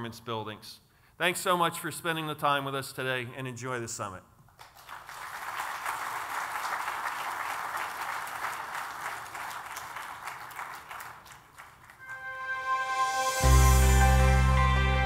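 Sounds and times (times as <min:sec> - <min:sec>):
audience applauding: 0:04.6 - 0:12.3.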